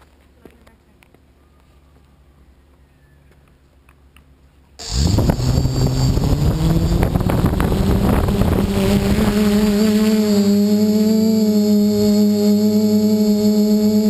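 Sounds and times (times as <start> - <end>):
prop wash buffeting microphone: 4.8 - 14.0
quadcopter motors whining: 4.8 - 14.0.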